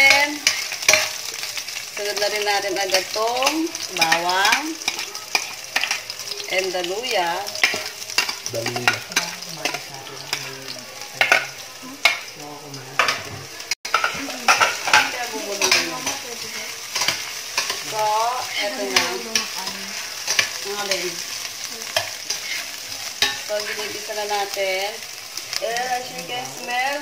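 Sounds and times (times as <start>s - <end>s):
onions sizzling in hot oil: 0.0s - 27.0s
spoon scraping pot: 22.0s - 24.0s.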